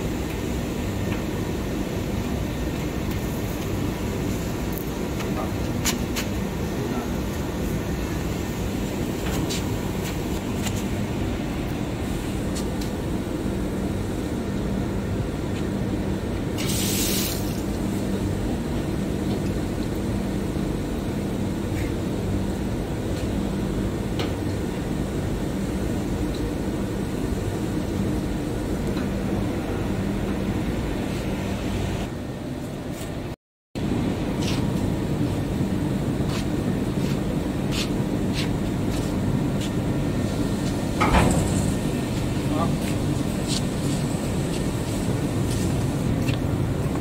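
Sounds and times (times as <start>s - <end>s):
machinery humming: 0.0s - 16.6s, 17.6s - 47.0s
brief hiss: 16.6s - 17.6s.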